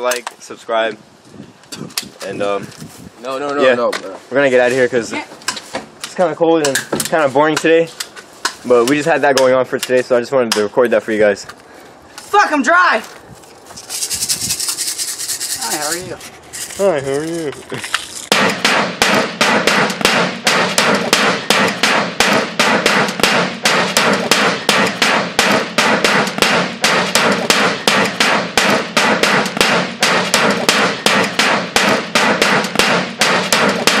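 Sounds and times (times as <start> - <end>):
bat whacking metal microwave case: 18.3 - 34.0.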